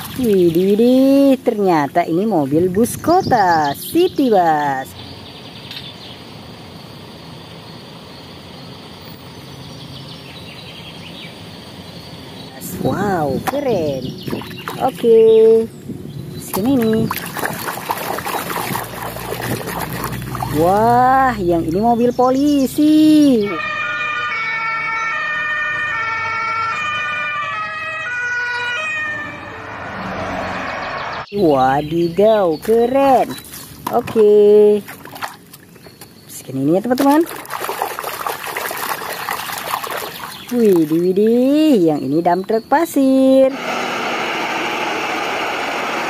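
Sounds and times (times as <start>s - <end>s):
outdoor street noise: 0.0s - 46.0s
police sirens two-tone: 23.4s - 31.0s.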